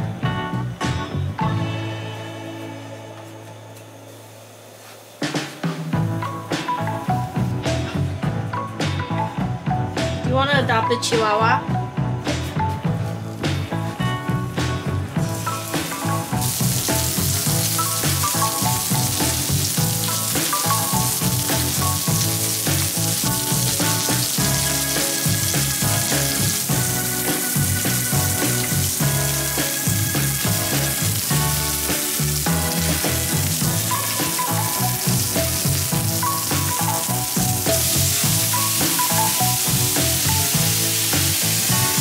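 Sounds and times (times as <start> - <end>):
background music: 0.0 - 42.0
food sizzling in oil: 4.0 - 8.0, 15.2 - 42.0.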